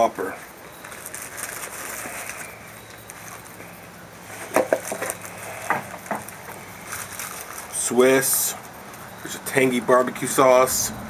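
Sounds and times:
paper wrapper rustling: 0:00.6 - 0:08.4.

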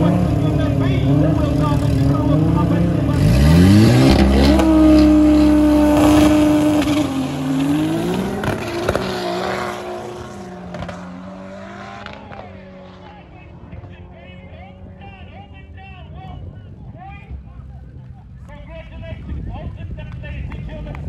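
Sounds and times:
drag car engine revving: 0:00.0 - 0:15.1.

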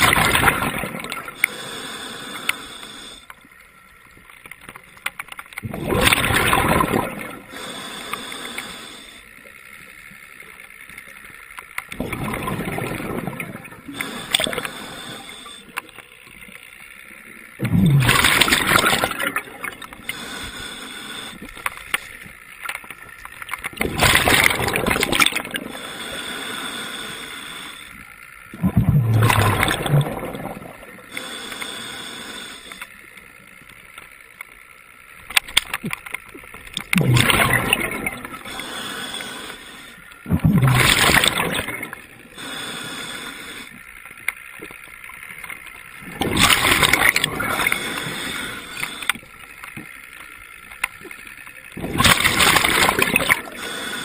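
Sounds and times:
underwater bubbling bursts: 0:00.0 - 0:01.8, 0:05.6 - 0:08.8, 0:11.9 - 0:15.8, 0:17.6 - 0:21.6, 0:23.7 - 0:27.2, 0:28.5 - 0:31.4, 0:36.3 - 0:43.7, 0:45.9 - 0:49.1, 0:51.0 - 0:54.0
low watery hiss: 0:00.0 - 0:54.0
sharp clicks: 0:32.5 - 0:40.2.

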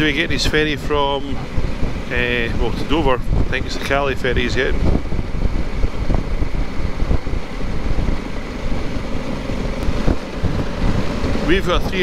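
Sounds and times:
wind buffeting microphone: 0:00.0 - 0:12.0
motorcycle engine: 0:04.8 - 0:12.0.

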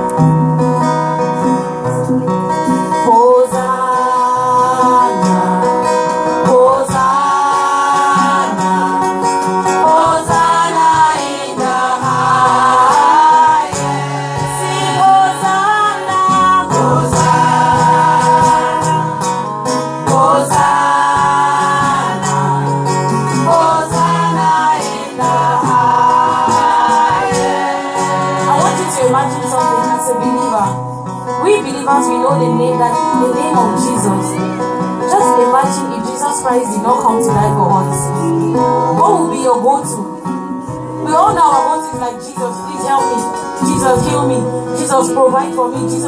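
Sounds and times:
instrumental backing music: 0:00.0 - 0:46.0
women singing gospel: 0:02.9 - 0:30.8, 0:41.0 - 0:46.0.

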